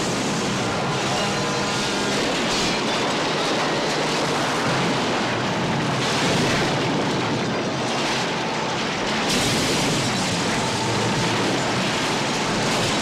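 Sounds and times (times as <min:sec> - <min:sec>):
stunt truck rumbling and crashing: 0:08.2 - 0:13.0.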